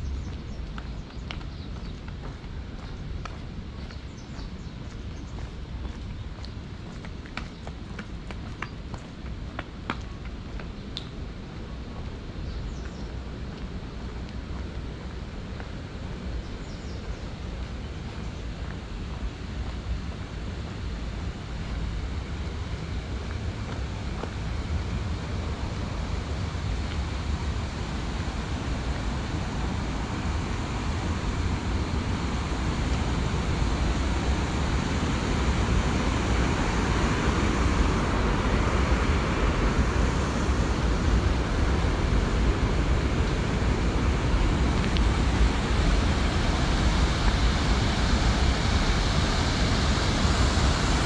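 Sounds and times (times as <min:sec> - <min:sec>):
steady rushing noise: 0:00.0 - 0:51.0.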